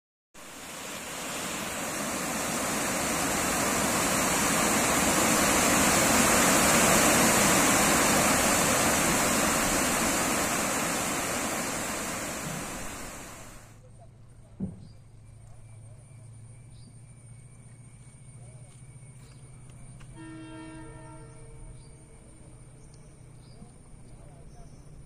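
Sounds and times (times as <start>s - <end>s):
water rushing over weir: 0.4s - 13.7s.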